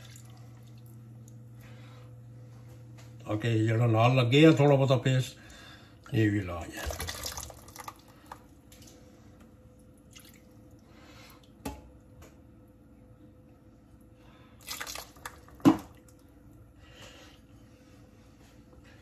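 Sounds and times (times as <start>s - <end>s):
water trickling into a saucepan: 0.0s - 1.0s, 6.7s - 8.9s, 10.0s - 10.8s, 14.6s - 16.2s.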